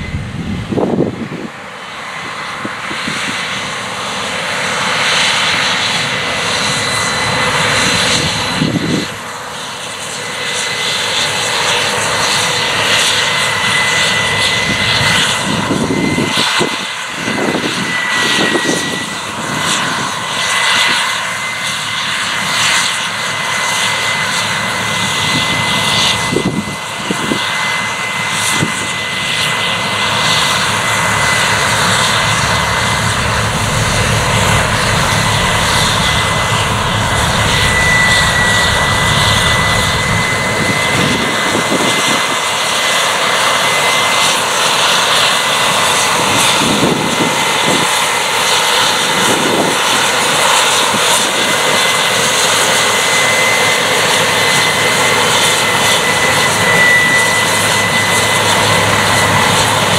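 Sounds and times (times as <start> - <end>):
combine harvester running: 0.0 - 2.0, 17.4 - 59.9
high machine whine: 0.0 - 59.9.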